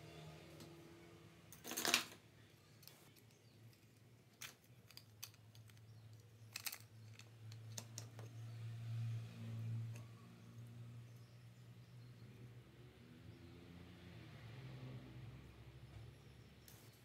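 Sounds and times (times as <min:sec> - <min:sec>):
plastic parts clicking and rattling: 0:02.8 - 0:08.3.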